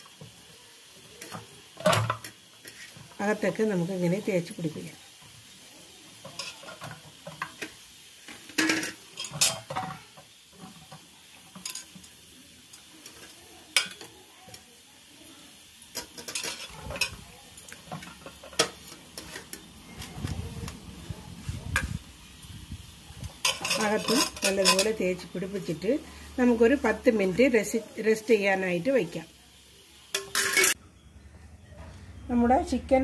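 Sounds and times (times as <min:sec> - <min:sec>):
knocks and clinks on metal bowl: 0:30.2 - 0:30.8.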